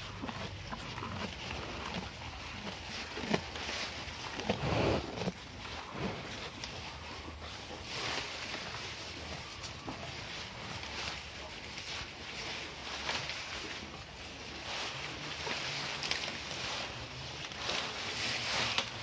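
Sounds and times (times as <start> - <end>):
cow chewing: 0.0 - 19.0
grass rustling and tearing: 0.0 - 19.0
cow blowing breath from nostrils: 4.3 - 6.6.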